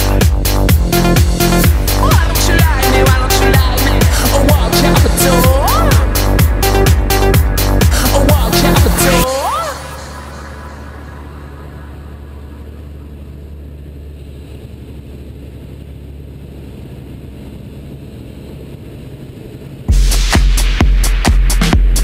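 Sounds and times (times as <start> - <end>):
electronic music with heavy beat: 0.0 - 11.6, 19.9 - 22.0
aircraft engine drone: 0.0 - 22.0.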